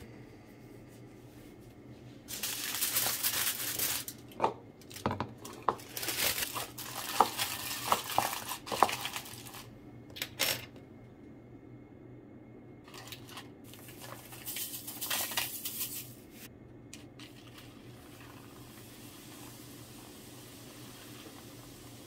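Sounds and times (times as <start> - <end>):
aluminium foil crinkling: 2.3 - 9.7, 12.9 - 16.2.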